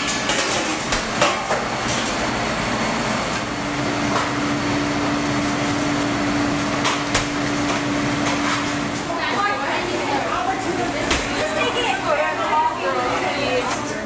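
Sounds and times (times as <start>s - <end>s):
metal pans and utensils clinking: 0.0s - 2.2s, 6.8s - 8.8s
room hum: 0.0s - 14.0s.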